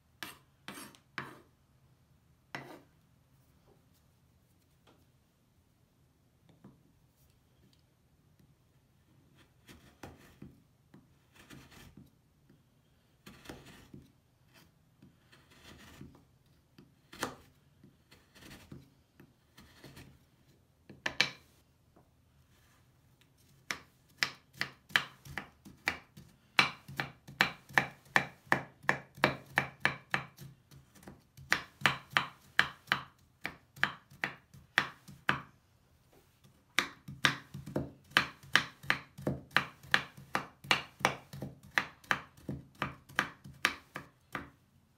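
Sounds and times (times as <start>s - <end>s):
knife chopping on wooden board: 23.7s - 35.5s, 36.7s - 44.6s.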